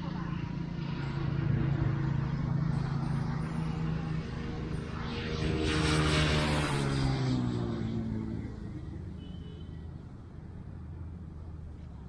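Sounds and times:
motor passing by: 0.0s - 9.2s.

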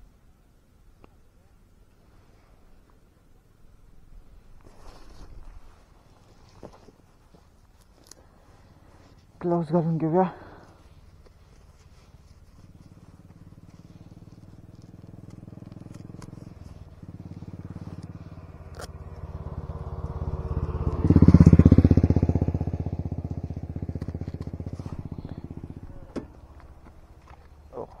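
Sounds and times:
motorcycle engine idling: 8.4s - 28.0s.

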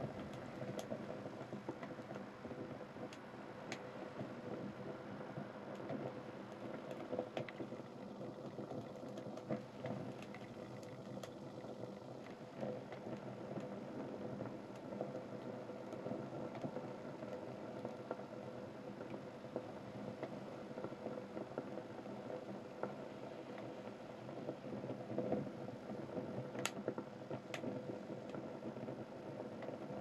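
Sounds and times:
fire burning: 0.0s - 29.3s
crackles and pops of burning: 0.0s - 30.0s.

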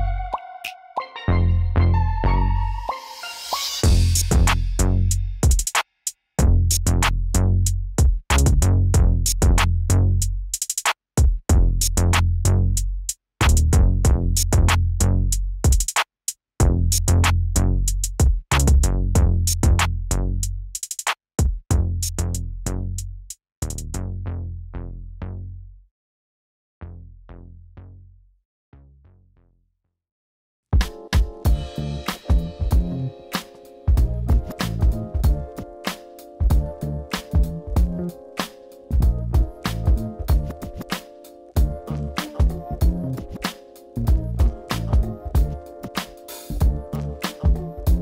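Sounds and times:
electronic music with heavy bass: 0.0s - 5.7s, 31.5s - 48.0s.

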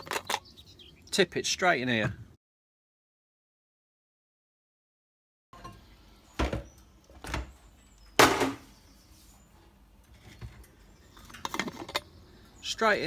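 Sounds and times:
plastic jug and metal flask clunking: 8.2s - 8.7s.

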